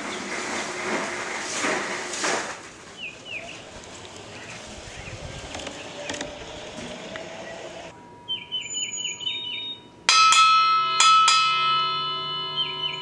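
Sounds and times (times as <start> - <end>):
bird chirping: 3.0 - 9.9, 12.5 - 13.0
streetcar gong ringing: 10.0 - 13.0.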